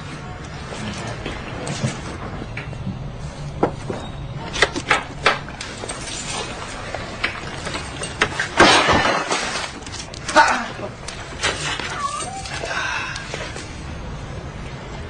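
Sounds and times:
loud crash: 8.4 - 9.8.

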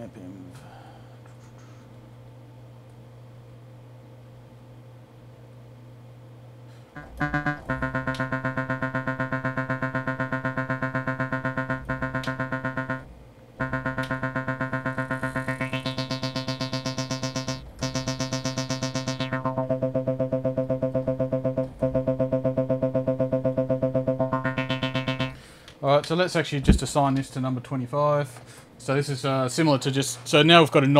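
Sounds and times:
synthesizer repeating low notes: 6.9 - 25.4.

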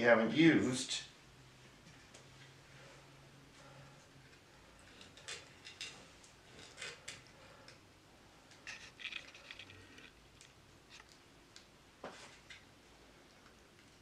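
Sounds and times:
cable tie scratching and clicking: 8.5 - 11.7.

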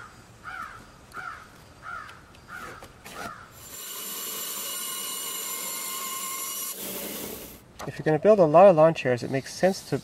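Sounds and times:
crow cawing: 0.0 - 3.6
bandsaw whining: 3.1 - 7.6.

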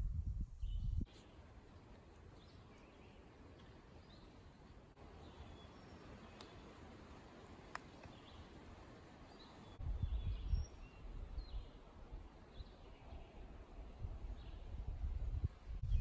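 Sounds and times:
low microphone rumble: 0.0 - 1.0
birds chirping faintly: 0.6 - 16.0.

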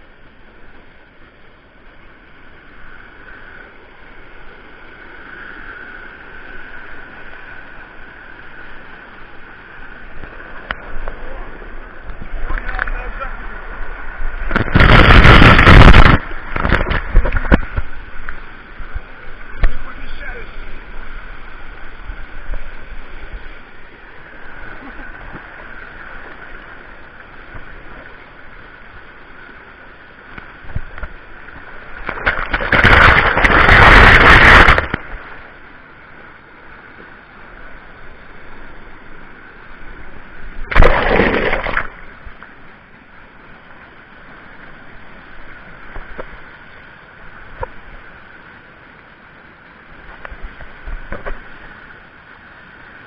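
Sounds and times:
small waterfall rushing: 1.8 - 53.0
water splashing on microphone: 10.1 - 20.9, 30.6 - 35.6, 40.5 - 42.4.

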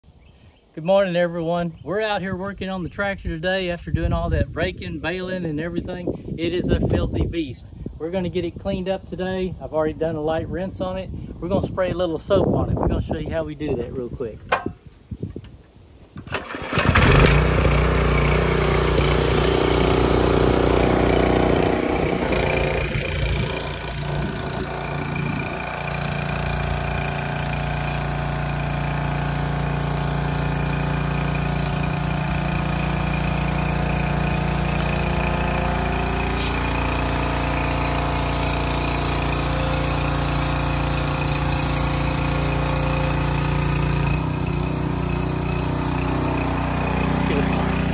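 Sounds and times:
small engine running: 16.2 - 47.9
water spray hissing: 16.5 - 47.9.

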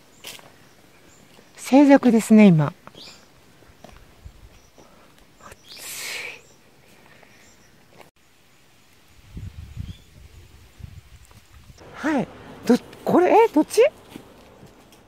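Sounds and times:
low rumbling noise: 11.8 - 13.1.

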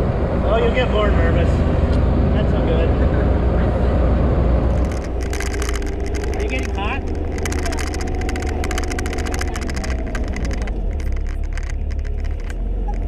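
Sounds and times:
diesel engine droning: 0.0 - 13.0
vehicle body rattling: 4.6 - 13.0.

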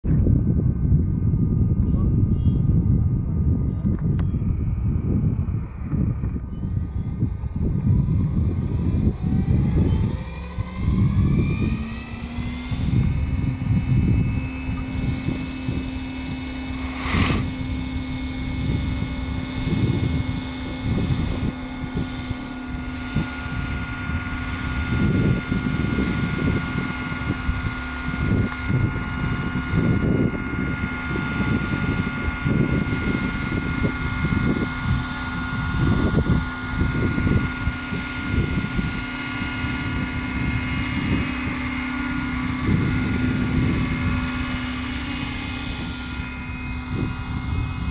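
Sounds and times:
model helicopter whine: 0.0 - 47.9.

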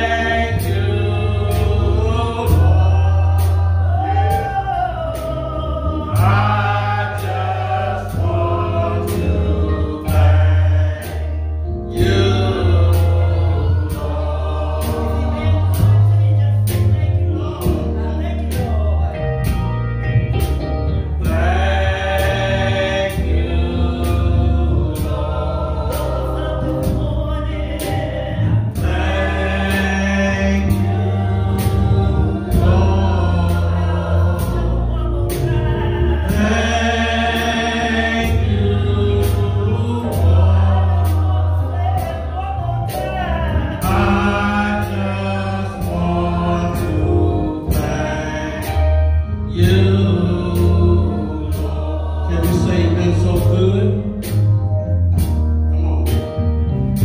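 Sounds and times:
steady drum beat: 0.0 - 20.6, 21.2 - 42.3
bass: 0.0 - 57.0
group singing gospel song: 0.0 - 57.0.

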